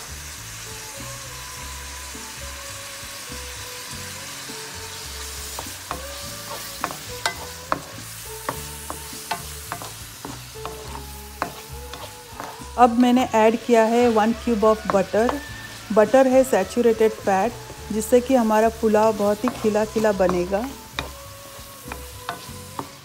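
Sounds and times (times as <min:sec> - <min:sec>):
vegetables sizzling in oil: 0:00.0 - 0:23.0
spatula knocking against pan: 0:19.4 - 0:21.2.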